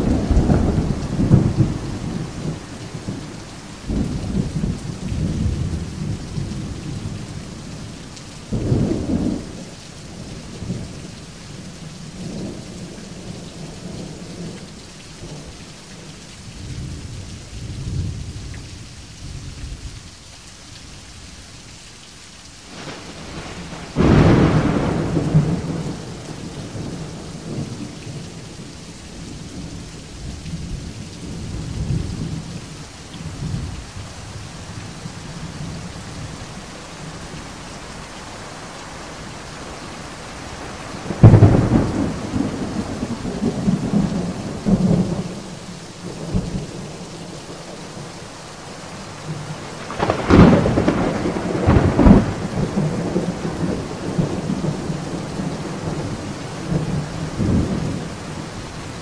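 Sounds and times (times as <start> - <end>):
thunder rumbling: 0.0 - 7.2, 22.7 - 32.6, 39.6 - 47.0, 49.2 - 58.6
steady rain: 0.0 - 59.0.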